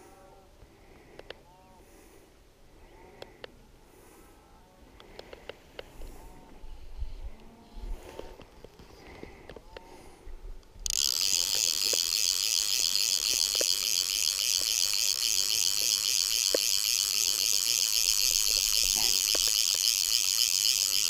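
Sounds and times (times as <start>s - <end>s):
fly reel ratchet buzzing: 10.8s - 21.0s.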